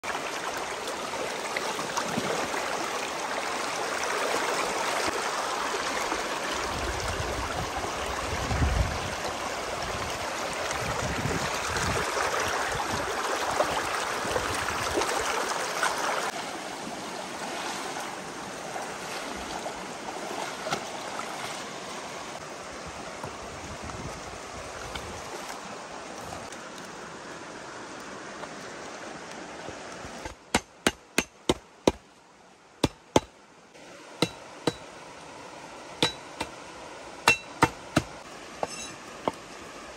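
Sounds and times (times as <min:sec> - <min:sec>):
water splashing: 0:00.0 - 0:05.2, 0:17.3 - 0:22.4
stream rushing over stones: 0:00.0 - 0:39.9.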